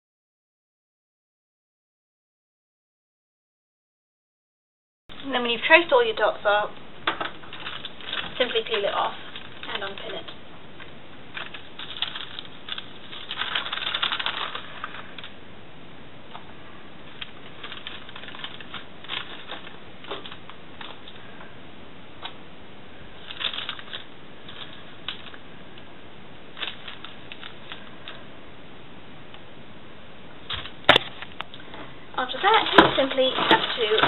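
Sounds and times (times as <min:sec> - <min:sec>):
tracing paper crinkling: 0:07.3 - 0:10.4, 0:11.3 - 0:15.4, 0:17.0 - 0:21.3, 0:23.2 - 0:25.4, 0:26.5 - 0:28.2, 0:32.2 - 0:34.0.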